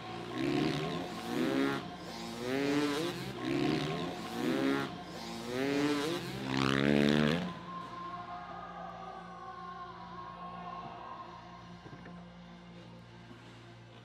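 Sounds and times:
motocross bike engine revving: 0:00.0 - 0:07.7.

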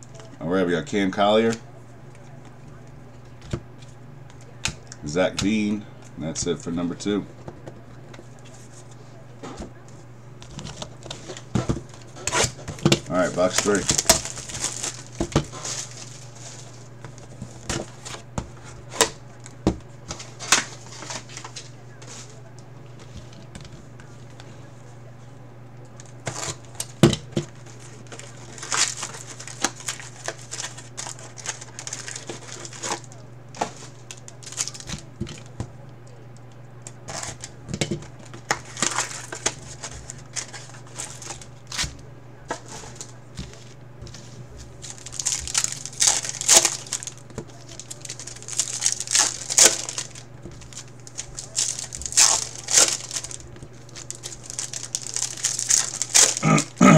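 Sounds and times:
steady low hum: 0:00.0 - 0:56.9
plastic wrapping crinkling and tearing: 0:10.4 - 0:24.5, 0:26.0 - 0:56.9.

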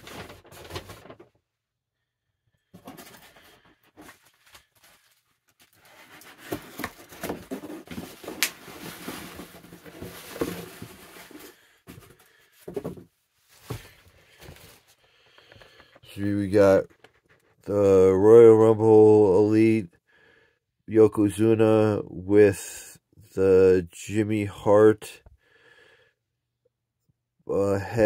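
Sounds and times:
plastic bag rustling: 0:00.0 - 0:01.4, 0:02.8 - 0:12.8.

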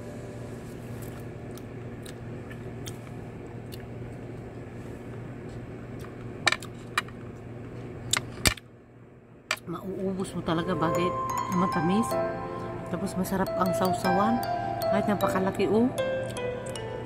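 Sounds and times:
low hum: 0:09.8 - 0:17.0.

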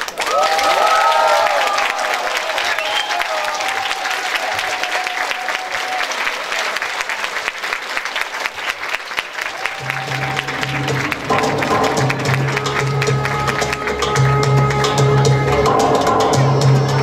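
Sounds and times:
audience clapping: 0:00.0 - 0:17.0
music: 0:09.7 - 0:17.0.

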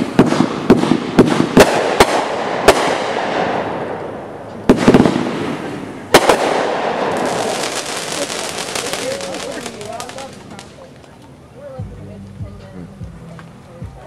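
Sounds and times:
fireworks bangs: 0:00.0 - 0:11.2
fireworks crackle: 0:00.0 - 0:11.5.

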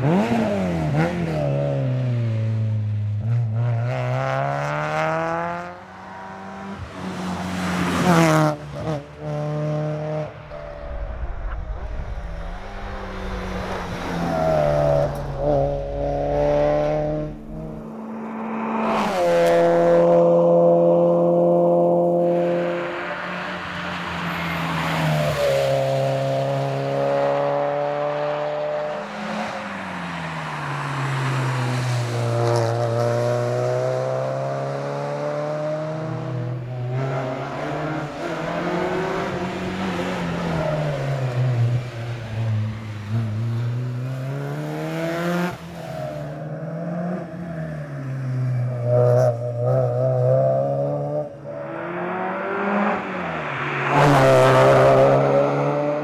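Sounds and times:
car engine revving past: 0:00.0 - 0:56.0.

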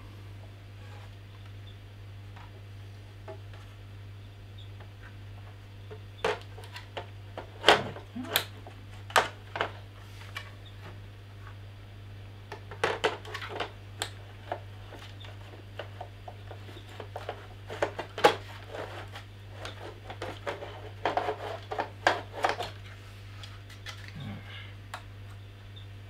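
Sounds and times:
plastic parts clicking and scraping: 0:05.9 - 0:10.5, 0:12.5 - 0:24.2.

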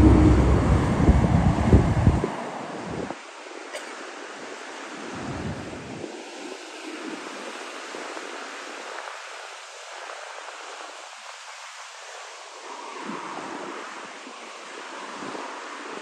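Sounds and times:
ocean surf breaking: 0:00.0 - 0:03.2
wind rumble on microphone: 0:00.0 - 0:03.2, 0:04.8 - 0:07.4.

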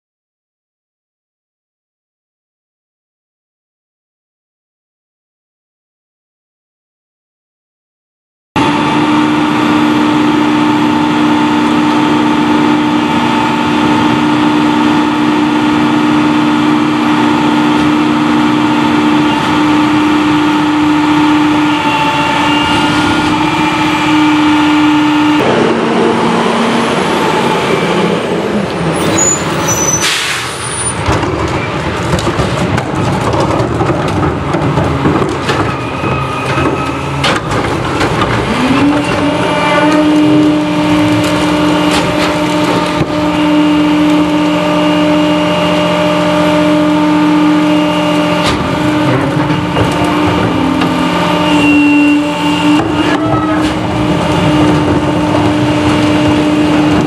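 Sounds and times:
garbage truck diesel engine humming: 0:08.6 - 0:57.0
clanks and knocks of carts: 0:28.3 - 0:44.5, 0:48.1 - 0:57.0
air hiss blast: 0:29.4 - 0:30.7.

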